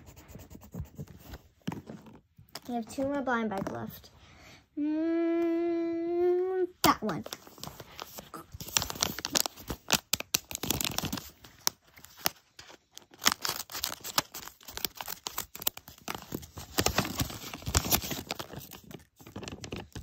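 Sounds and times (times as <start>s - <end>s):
paper crinkling and rustling: 7.0s - 20.0s.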